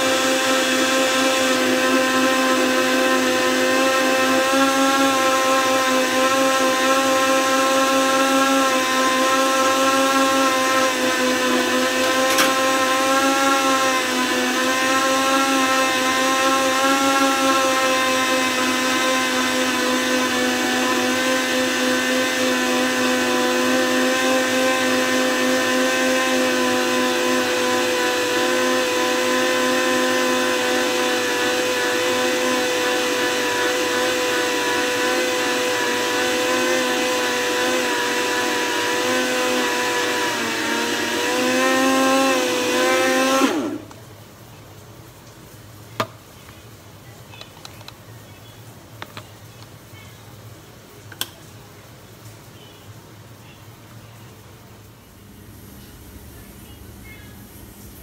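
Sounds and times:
blender motor whine: 0:00.0 - 0:44.0.

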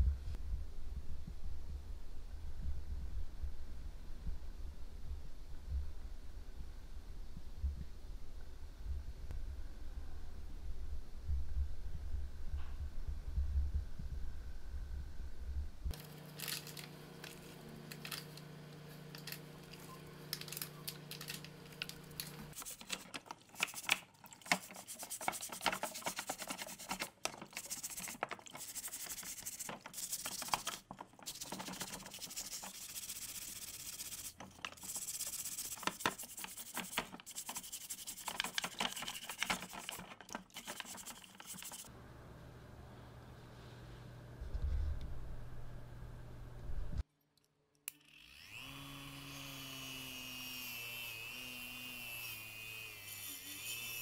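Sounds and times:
brush scrubbing wet plastic: 0:19.1 - 0:41.9.

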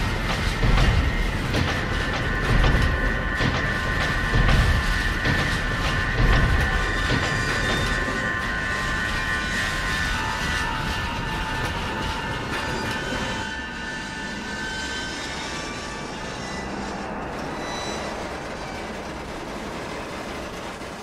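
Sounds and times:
vehicle road and engine noise: 0:11.5 - 0:21.0.

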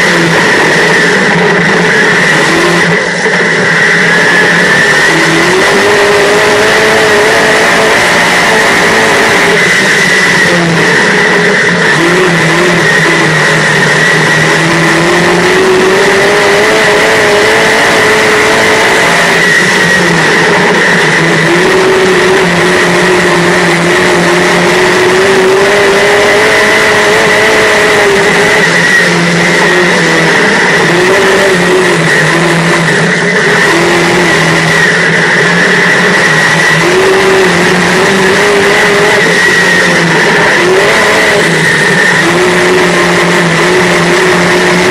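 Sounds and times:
race car engine running hard: 0:00.0 - 0:44.9
steady high whine: 0:00.0 - 0:44.9.

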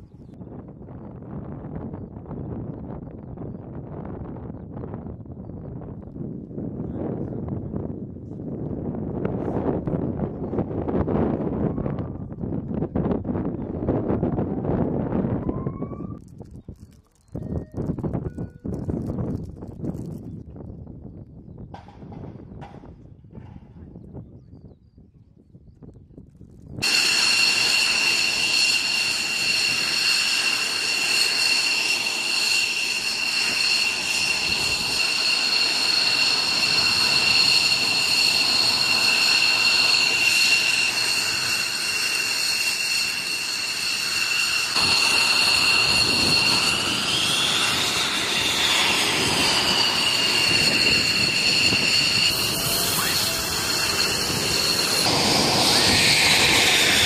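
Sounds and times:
jet engine whine: 0:26.7 - 0:57.0
rushing noise: 0:26.8 - 0:57.0.

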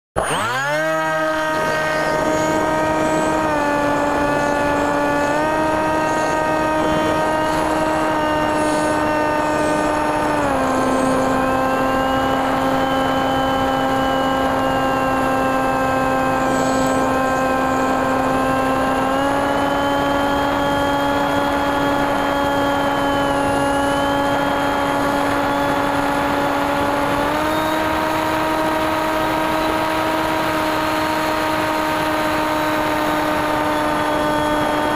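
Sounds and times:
electric motor propeller hum: 0:00.2 - 0:34.9.

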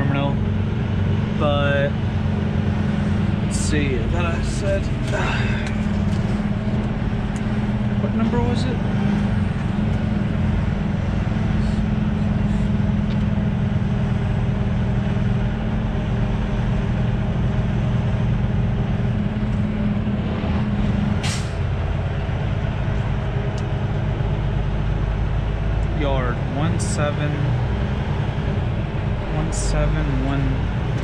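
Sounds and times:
truck diesel engine running: 0:00.0 - 0:31.0
air brake hiss: 0:21.2 - 0:21.6.

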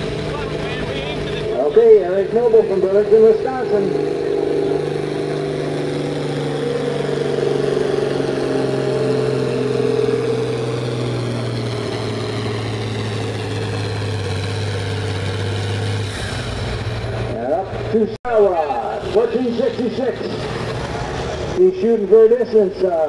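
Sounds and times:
tractor diesel engine under load: 0:00.0 - 0:23.0.

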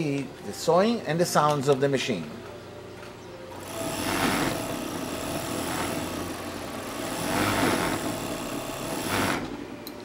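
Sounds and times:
overlock sewing machine running: 0:03.5 - 0:09.6.

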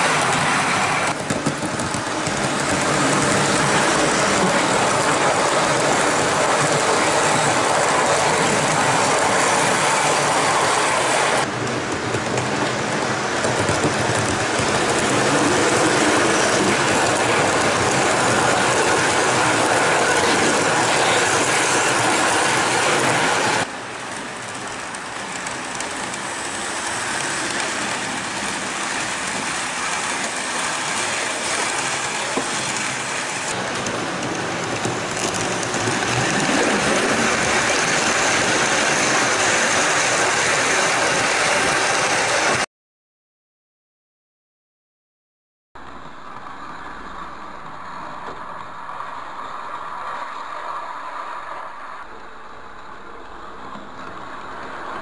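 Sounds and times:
model train whirring and rattling: 0:00.0 - 0:42.6.

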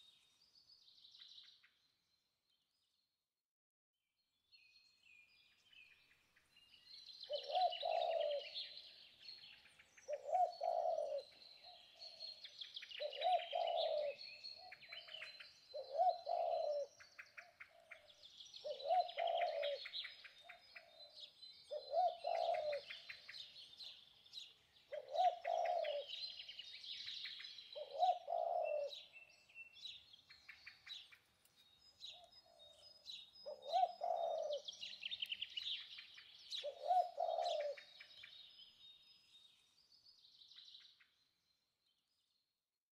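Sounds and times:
small birds chirping: 0:04.6 - 0:42.5
dove cooing: 0:07.3 - 0:08.8, 0:10.1 - 0:11.4, 0:13.0 - 0:16.9, 0:17.6 - 0:23.5, 0:24.9 - 0:26.5, 0:27.8 - 0:29.1, 0:33.5 - 0:35.1, 0:36.5 - 0:38.0.

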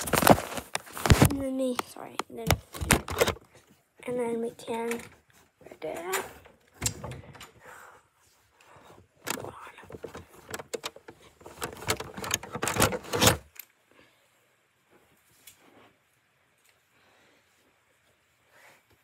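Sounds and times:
handling knocks and rattles: 0:09.2 - 0:13.6.

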